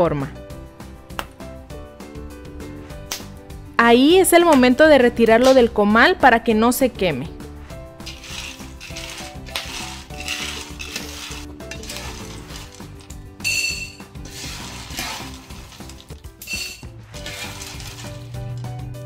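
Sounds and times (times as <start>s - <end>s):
background music: 0.0s - 19.0s
corn kernels rattling in a pan: 8.0s - 18.6s
kernels crackling: 8.0s - 18.6s
metal utensil clinking on pan: 13.4s - 14.0s, 16.4s - 17.8s.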